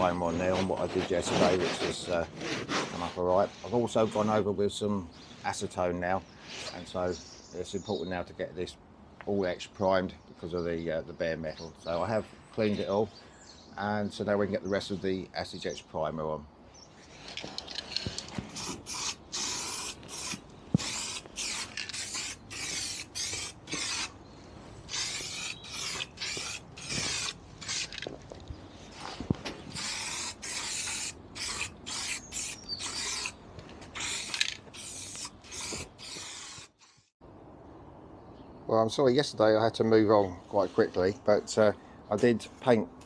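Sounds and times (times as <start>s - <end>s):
aerosol can spraying: 18.5s - 24.1s, 24.9s - 27.9s, 29.7s - 33.4s, 34.0s - 37.1s.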